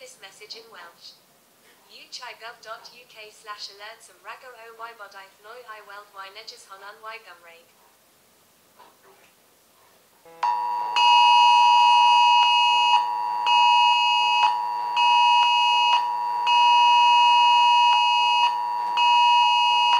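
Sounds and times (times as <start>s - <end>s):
harsh alarm tone: 10.3s - 19.9s
higher alarm blasts: 10.3s - 19.9s.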